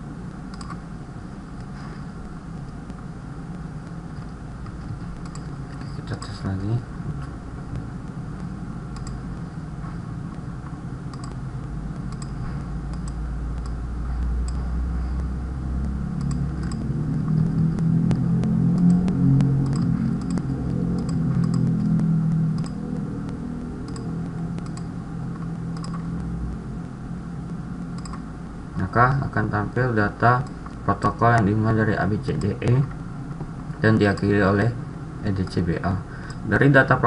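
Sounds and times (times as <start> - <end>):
low rumble: 0.0 - 37.0
computer mouse clicks: 0.5 - 0.8, 3.8 - 6.4, 7.2 - 9.5, 10.3 - 26.3, 27.5 - 28.3, 30.4 - 31.5, 32.3 - 34.4, 36.2 - 36.4
keyboard clicks: 0.5 - 0.8, 4.6 - 6.4, 7.2 - 9.2, 11.1 - 11.4, 12.0 - 13.8, 14.4 - 26.3, 27.9 - 28.2.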